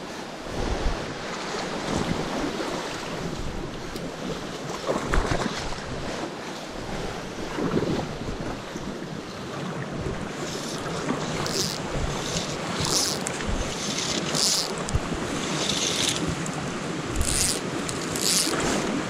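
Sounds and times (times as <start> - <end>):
wind on microphone: 0.3 - 19.0
stream water rushing: 9.3 - 19.0.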